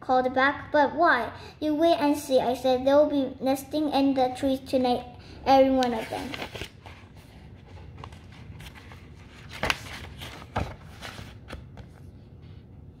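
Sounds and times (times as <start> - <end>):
paper rustling: 5.8 - 12.2.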